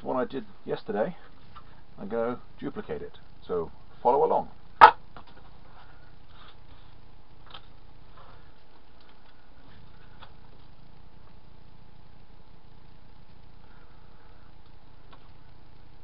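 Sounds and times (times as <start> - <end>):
low hum: 0.0 - 16.0.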